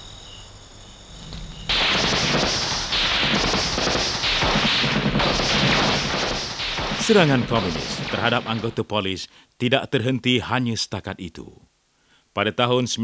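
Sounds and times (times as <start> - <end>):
explosions: 1.7 - 8.9
gunfire: 1.7 - 8.9.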